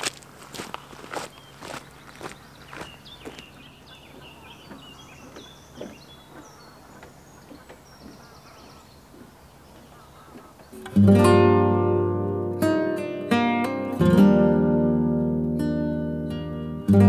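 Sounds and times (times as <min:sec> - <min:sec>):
footsteps on wooden boards: 0:00.0 - 0:10.8
bird chirps: 0:00.6 - 0:11.0
strummed acoustic guitar music: 0:10.7 - 0:17.0.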